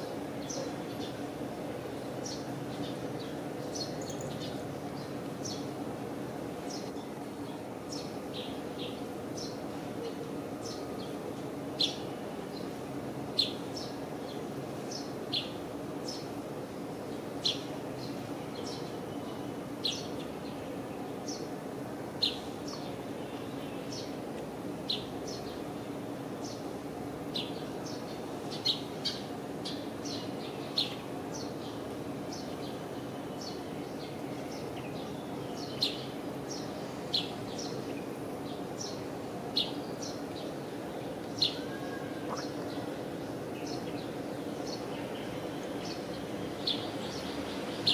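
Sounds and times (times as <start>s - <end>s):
low background hum: 0.0s - 47.9s
small birds chirping: 2.2s - 5.8s, 6.6s - 9.6s, 27.3s - 47.9s.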